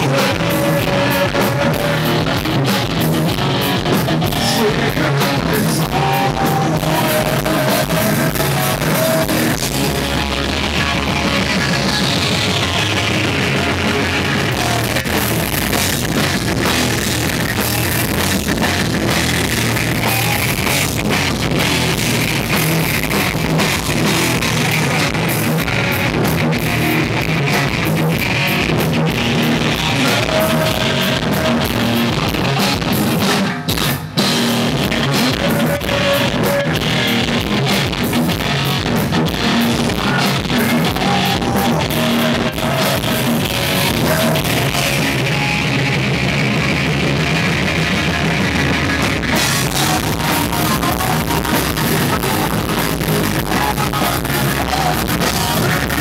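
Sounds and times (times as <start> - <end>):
man singing into a microphone: 0.0 - 3.0, 4.2 - 10.2, 13.5 - 16.0, 18.8 - 21.4, 29.1 - 33.2, 34.7 - 37.7, 39.2 - 45.9, 49.2 - 56.0
rock band playing live: 0.0 - 56.0.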